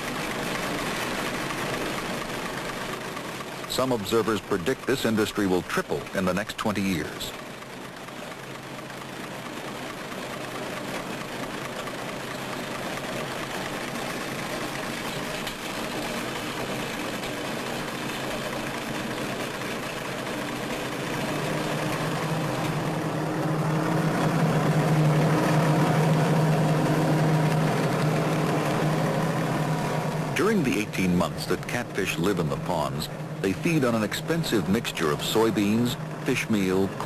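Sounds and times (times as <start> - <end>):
engine running: 0.0 - 37.0
low hum: 12.3 - 37.0.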